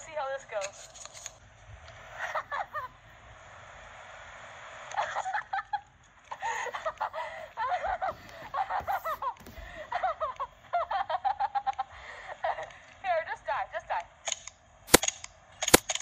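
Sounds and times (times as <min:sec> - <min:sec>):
people laughing and snickering: 0:02.2 - 0:03.0, 0:05.0 - 0:12.7.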